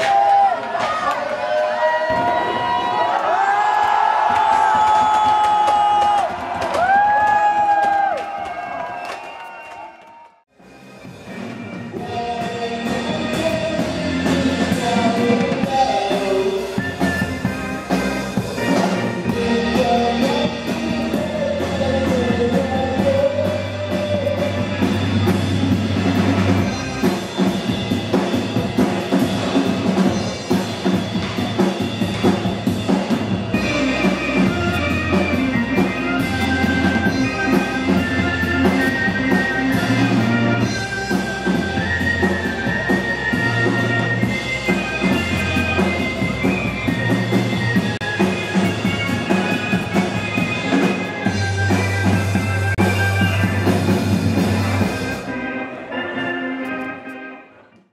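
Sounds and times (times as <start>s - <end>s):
rock music with drums and bass: 10.6s - 56.7s.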